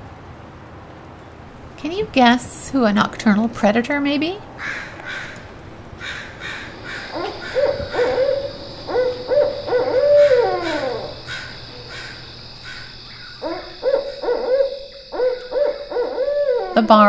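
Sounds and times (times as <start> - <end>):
owl hooting: 4.5 - 17.0.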